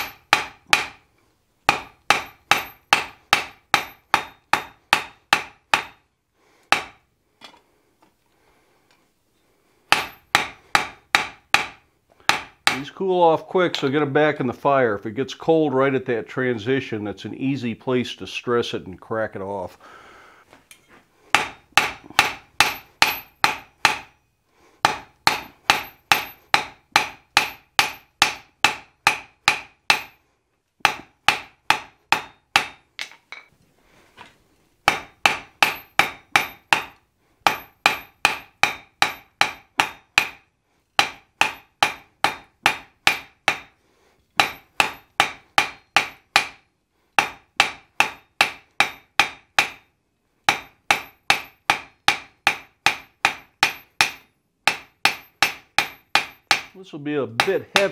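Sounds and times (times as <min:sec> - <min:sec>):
hammer striking steel on anvil: 0:00.0 - 0:01.0, 0:01.7 - 0:06.1, 0:06.7 - 0:07.0, 0:09.9 - 0:12.9, 0:20.7 - 0:24.2, 0:24.8 - 0:30.2, 0:30.8 - 0:33.5, 0:34.8 - 0:43.8, 0:44.4 - 0:46.6, 0:47.2 - 0:49.9, 0:50.5 - 0:56.8, 0:57.4 - 0:57.9.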